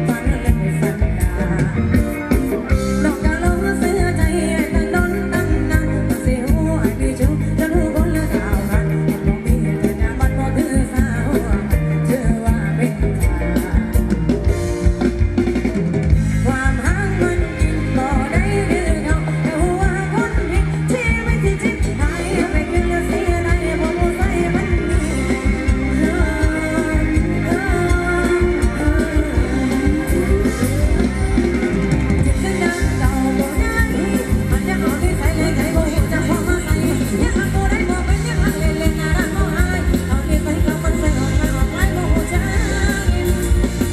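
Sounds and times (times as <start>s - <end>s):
electric guitar: 0.0s - 43.9s
live band playing dance music: 0.0s - 43.9s
person singing: 0.0s - 43.9s
steady drum beat: 0.0s - 43.9s.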